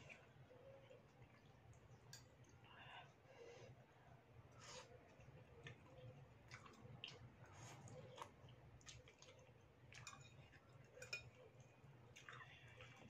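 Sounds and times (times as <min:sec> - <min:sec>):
noodles slurped and chewed: 0:04.5 - 0:13.0.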